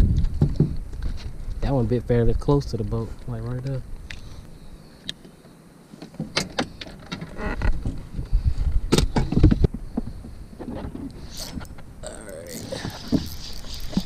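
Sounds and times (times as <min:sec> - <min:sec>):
knocks and thuds of handling: 0:00.2 - 0:01.2.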